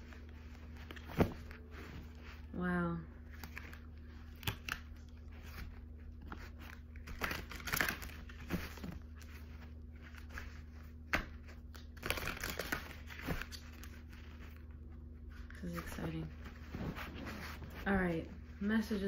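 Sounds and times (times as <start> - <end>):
steady low hum: 0.0 - 19.0
cards being shuffled: 3.3 - 14.7.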